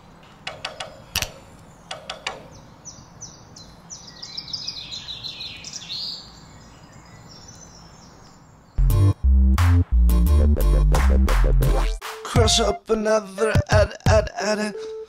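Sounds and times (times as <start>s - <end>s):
small birds chirping: 0.6s - 8.8s.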